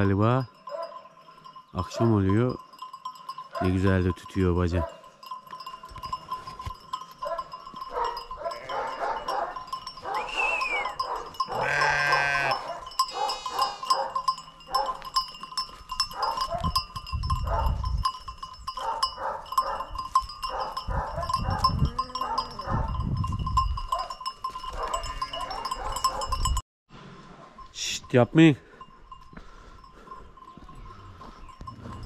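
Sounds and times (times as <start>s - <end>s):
bells clinking: 0.0s - 26.6s, 27.5s - 32.0s
sheep bleating: 8.4s - 9.2s, 11.5s - 13.8s.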